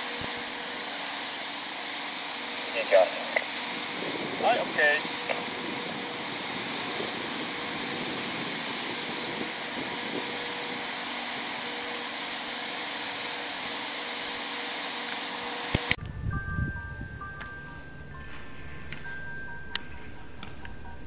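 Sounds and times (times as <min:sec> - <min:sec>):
rushing outdoor hiss: 0:00.0 - 0:15.9.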